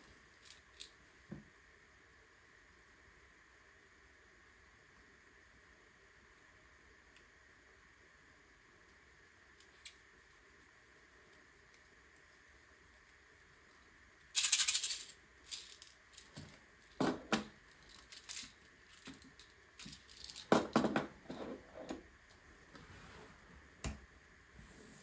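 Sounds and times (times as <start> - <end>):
plastic pieces rattling and clicking: 0.4 - 1.0, 13.7 - 21.0.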